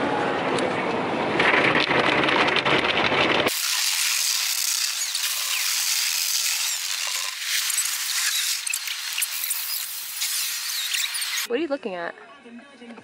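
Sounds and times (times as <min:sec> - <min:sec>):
water spraying on windows: 0:03.5 - 0:11.5.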